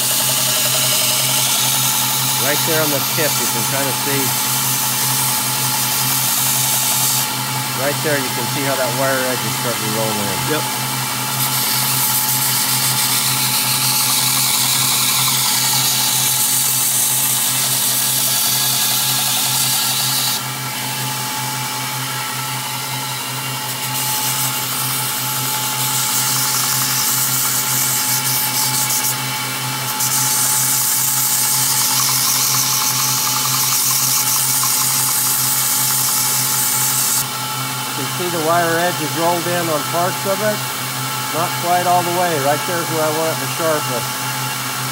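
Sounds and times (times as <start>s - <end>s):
blade grinding hiss: 0.0s - 20.4s, 23.6s - 37.2s
belt grinder motor hum: 0.0s - 44.9s.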